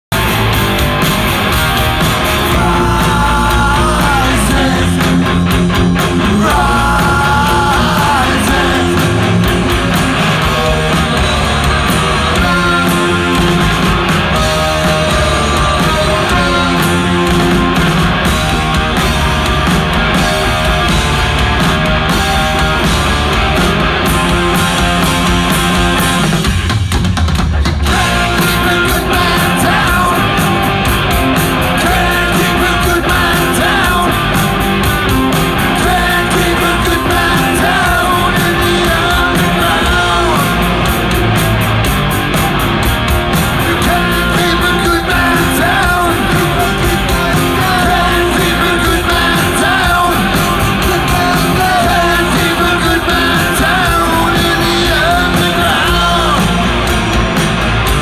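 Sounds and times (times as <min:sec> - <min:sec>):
punk rock band playing: 0:00.0 - 0:58.0
person singing: 0:02.4 - 0:17.8, 0:27.9 - 0:41.1, 0:43.5 - 0:57.0.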